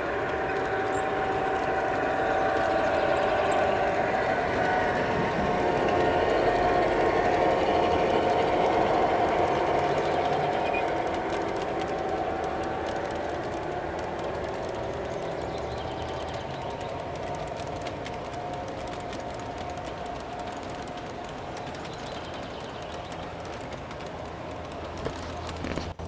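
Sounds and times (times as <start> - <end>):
model train motor hum: 0.0 - 26.0
train wheels clicking on rails: 0.0 - 26.0.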